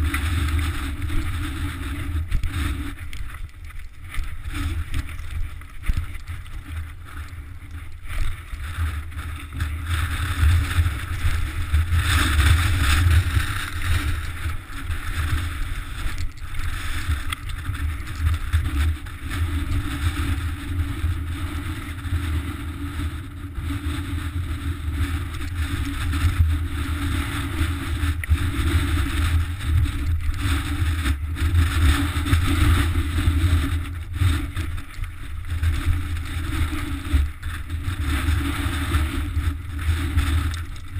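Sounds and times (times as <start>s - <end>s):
wind rumble on microphone: 0.0s - 40.9s.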